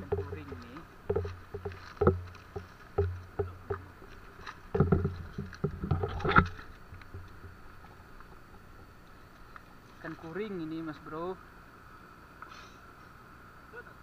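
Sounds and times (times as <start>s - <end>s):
flip-flop footsteps on stones: 0.0s - 10.4s.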